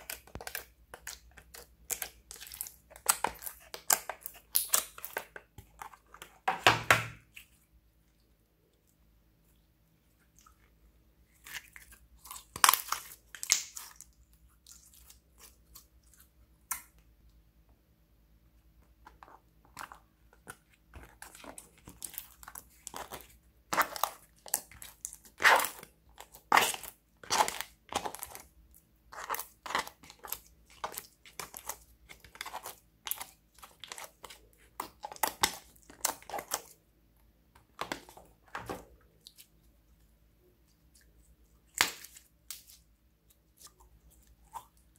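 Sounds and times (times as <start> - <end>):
slime popping and crackling: 0.0 - 5.4, 12.2 - 14.1, 21.2 - 28.5.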